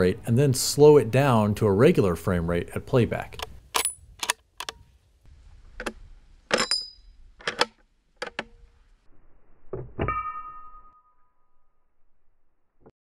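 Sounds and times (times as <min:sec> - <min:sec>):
metallic clicks of rifle handling: 0:03.3 - 0:04.9, 0:05.8 - 0:08.6.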